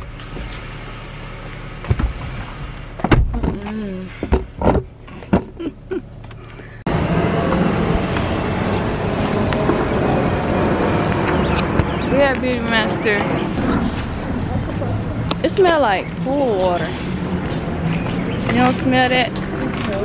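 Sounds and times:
car engine hum: 0.0 - 20.0
outdoor noise haze: 0.0 - 20.0
car door handled: 1.8 - 2.4, 3.0 - 5.7
knocks and rustles: 1.8 - 5.7.

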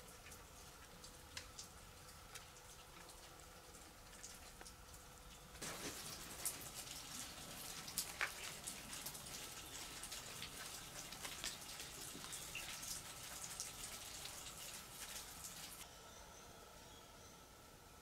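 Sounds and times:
stream water trickling: 0.0 - 15.9.

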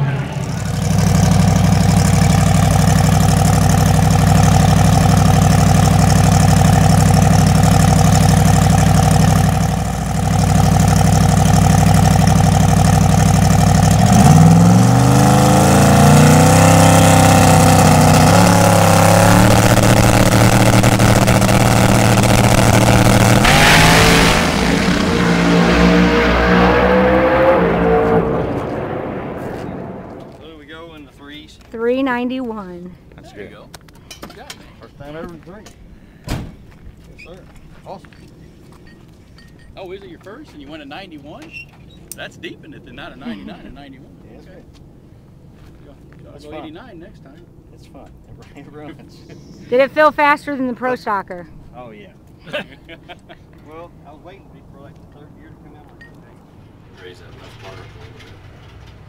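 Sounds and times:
drag car accelerating at full throttle: 0.0 - 30.4
drag car engine idling and revving: 0.0 - 30.4, 56.8 - 59.0.

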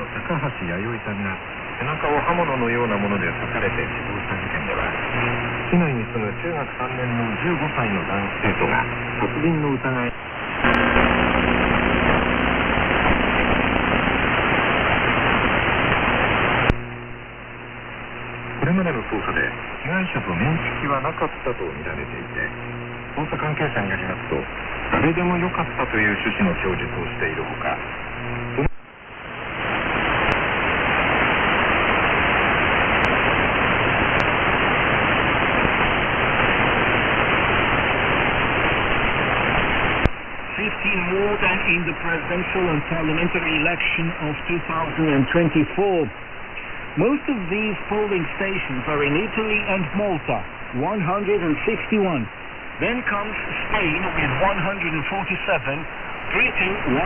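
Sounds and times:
faint low hum tones: 0.0 - 28.7
radio static hiss: 0.0 - 57.0.

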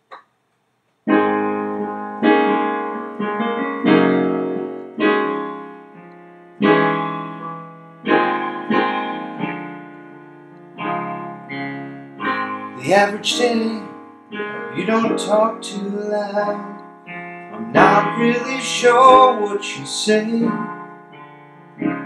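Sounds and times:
slow piano chords: 1.0 - 22.0.

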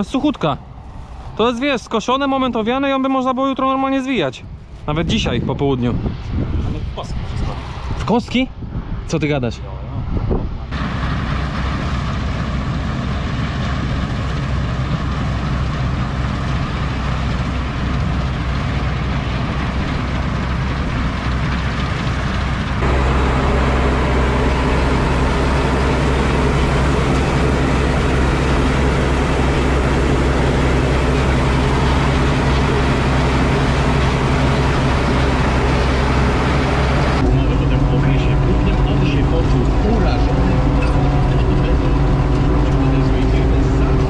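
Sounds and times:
tractor engine running: 10.7 - 44.0.

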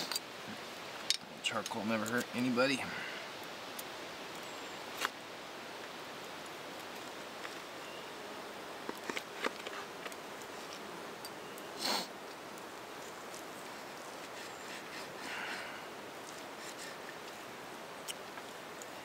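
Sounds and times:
rushing water hiss: 0.0 - 7.8, 11.8 - 19.0.

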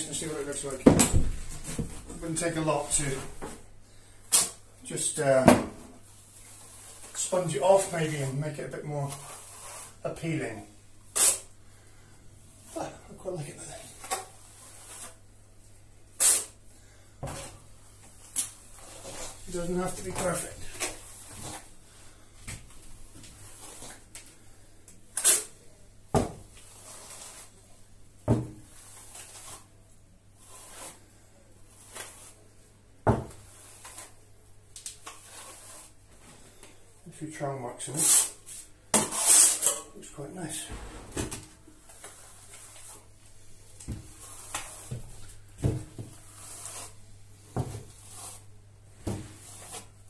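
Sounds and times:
soft trowel sweeps: 6.2 - 10.6, 13.6 - 15.3, 23.2 - 24.1, 26.6 - 27.8, 28.6 - 29.8, 30.4 - 32.6, 33.4 - 34.2, 35.0 - 36.6, 40.4 - 45.4, 46.0 - 50.0
trowel scraping plaster: 9.0 - 10.2, 11.1 - 11.5, 13.9 - 15.2, 16.2 - 16.6, 23.4 - 24.0, 25.1 - 25.6, 26.6 - 27.6, 28.6 - 29.7, 30.4 - 31.1, 31.7 - 32.5, 33.4 - 34.2, 35.1 - 36.0, 37.9 - 38.4, 39.0 - 39.9, 41.9 - 43.2, 44.0 - 45.2, 46.0 - 47.0, 47.8 - 48.5, 49.3 - 49.9.

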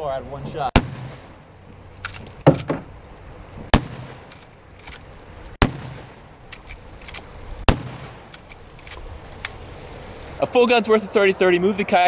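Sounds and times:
rifle shots: 0.8 - 1.4, 3.7 - 5.0, 5.6 - 9.0
rifle lever clicks: 2.0 - 2.8, 4.3 - 5.0, 6.5 - 7.3, 8.3 - 9.6.

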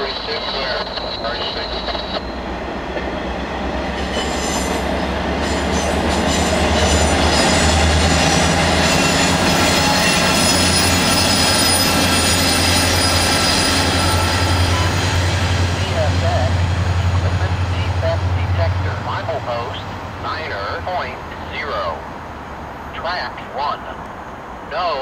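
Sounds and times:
diesel locomotive drone: 0.0 - 25.0
train rolling rumble: 0.0 - 25.0
train wheels squealing: 4.0 - 15.2.

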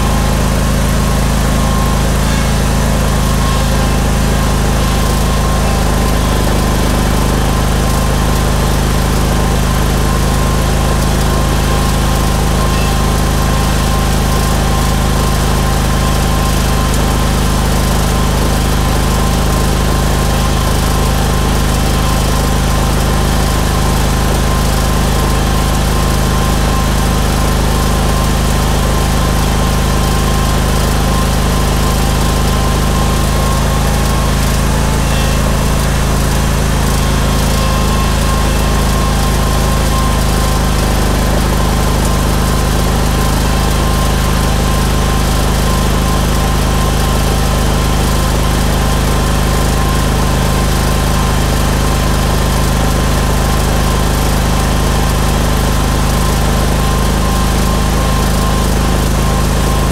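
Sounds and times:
small engine humming: 0.0 - 59.9.

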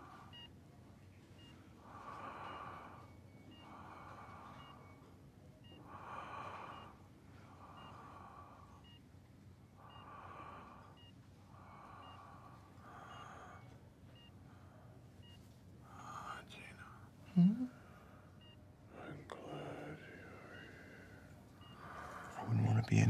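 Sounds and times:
patient monitor beeps: 0.0 - 23.0
slow rasping breaths: 1.4 - 9.0, 9.6 - 15.0, 17.7 - 22.8.

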